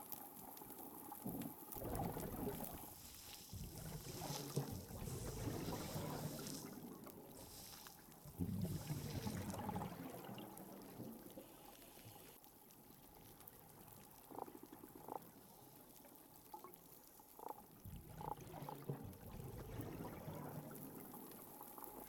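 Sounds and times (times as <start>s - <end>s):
low underwater rush: 1.7s - 11.6s, 18.0s - 21.6s.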